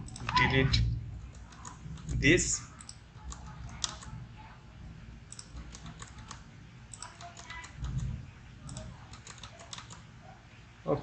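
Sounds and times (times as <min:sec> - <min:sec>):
keyboard and mouse clicks: 0:00.0 - 0:00.5, 0:01.3 - 0:02.2, 0:02.8 - 0:04.1, 0:05.3 - 0:10.1.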